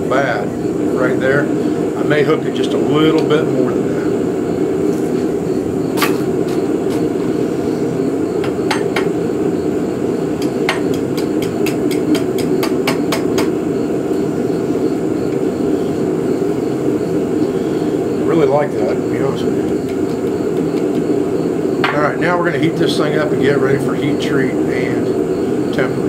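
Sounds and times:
steady low hum: 0.0 - 26.0
hammer tapping on anvil: 10.4 - 13.6.

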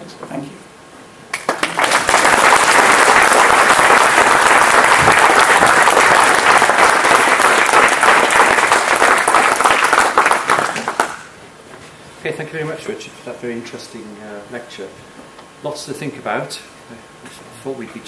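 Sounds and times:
audience clapping: 1.3 - 11.4.

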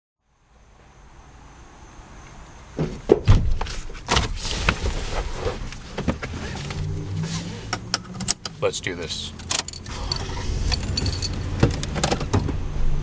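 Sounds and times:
rustling: 3.6 - 7.7.

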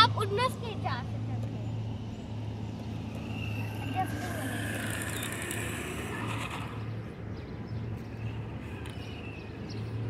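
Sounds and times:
small electric motor whining: 2.8 - 7.2.

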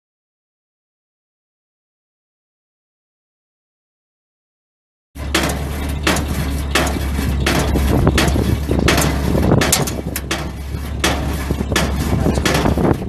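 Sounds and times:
clattering engine knock: 5.2 - 13.0
truck engine running: 5.2 - 13.0.

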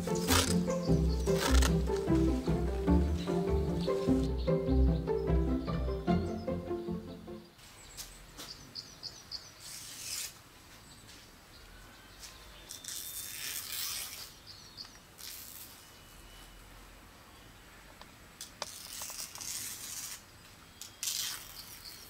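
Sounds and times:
palm leaf strips rustling: 0.0 - 4.6, 9.6 - 11.4, 12.2 - 16.4, 18.4 - 22.0
faint bird chirps: 10.8 - 17.9.

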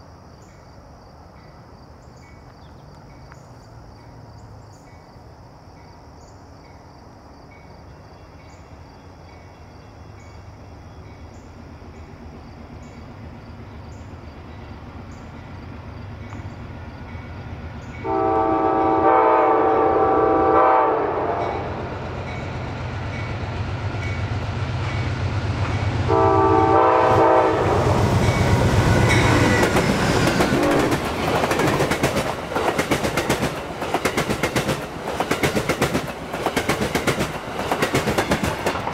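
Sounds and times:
insects chirping: 0.0 - 38.9
diesel locomotive engine hum: 1.2 - 38.9
train horn blasts: 18.0 - 22.0, 26.0 - 29.7
wheels clattering over rail joints: 28.2 - 38.9.

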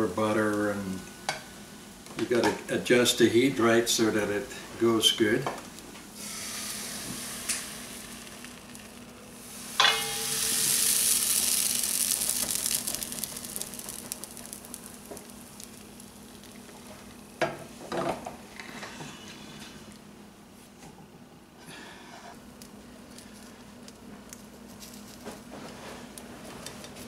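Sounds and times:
batter sizzling in a frying pan: 0.0 - 18.1.

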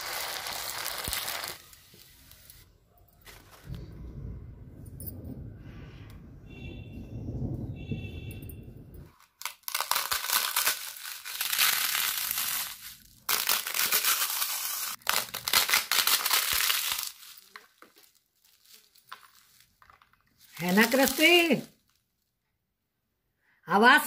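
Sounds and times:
crisp papads crackling and crunching: 0.0 - 2.6, 9.1 - 22.3.

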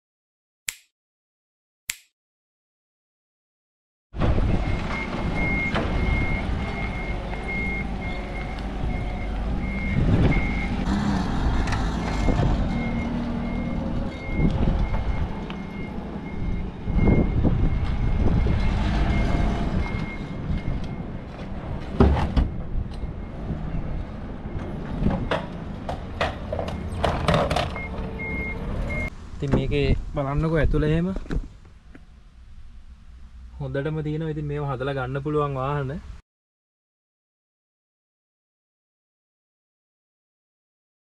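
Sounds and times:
forklift warning beeps: 4.6 - 10.9, 12.2 - 21.3, 22.5 - 25.8, 26.6 - 27.1, 27.7 - 29.1
knocks and clunks: 21.7 - 23.1, 24.6 - 28.5, 31.2 - 32.1.

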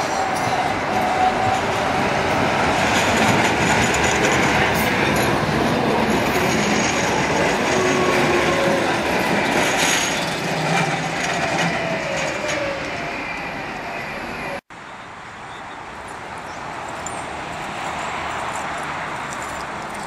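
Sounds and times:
tram wheels rumbling on rails: 0.0 - 14.6
street noise: 0.0 - 20.0.

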